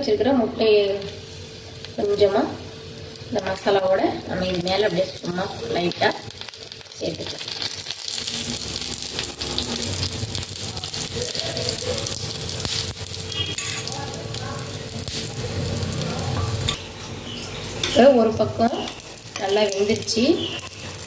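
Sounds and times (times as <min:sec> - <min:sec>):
bread sizzling on a griddle: 0:00.8 - 0:21.0.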